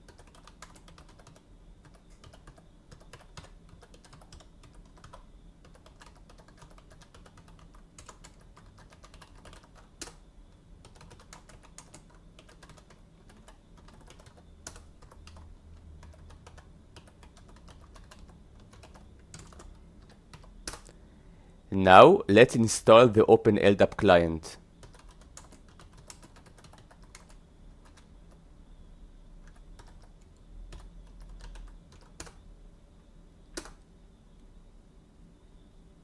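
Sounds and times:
faint keyboard typing: 0.0 - 21.0, 23.0 - 28.5, 29.4 - 32.5, 33.5 - 34.5
steady low hum: 0.0 - 36.0.

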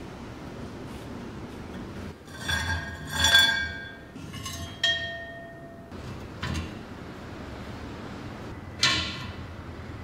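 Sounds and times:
metal scrape: 2.2 - 5.2
rusty metal parts clinking: 2.3 - 5.8.

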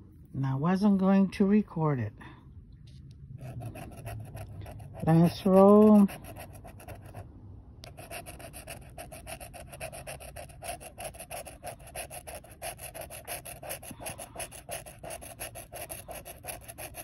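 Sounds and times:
scratching lottery ticket: 3.4 - 7.2, 7.9 - 17.0.

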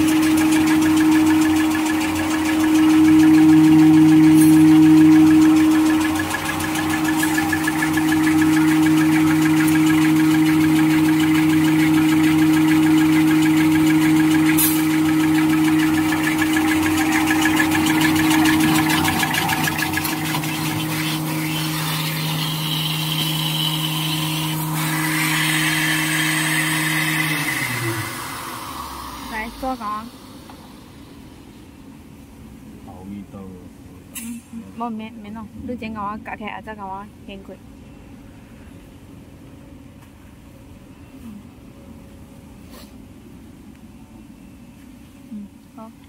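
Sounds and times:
folding machine rattling: 0.0 - 26.5
steady low hum: 0.0 - 46.0.

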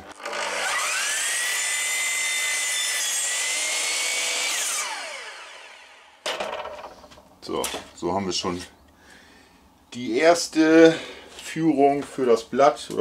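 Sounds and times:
miter saw whining: 0.0 - 6.2
saw cutting wood: 0.0 - 6.2.

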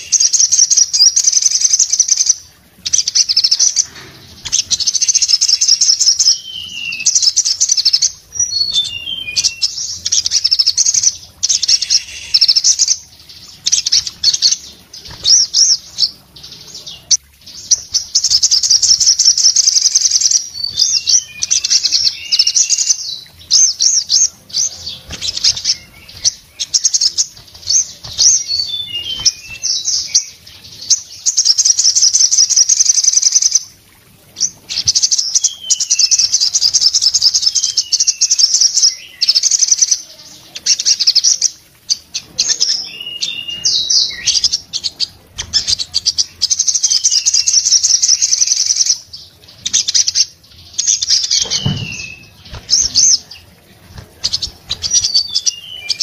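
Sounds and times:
sunbird singing fast trills: 0.0 - 33.7, 34.4 - 56.0
low thump: 51.4 - 52.8.

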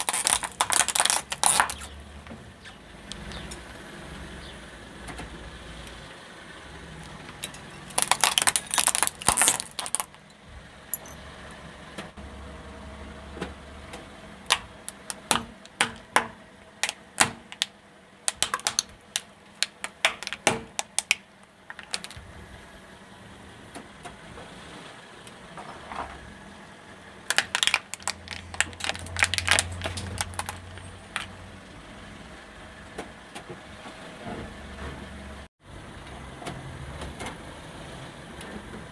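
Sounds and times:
tyre crushing plastic objects: 0.0 - 1.9, 7.3 - 10.2, 14.5 - 17.7, 18.3 - 22.2, 27.3 - 31.3.

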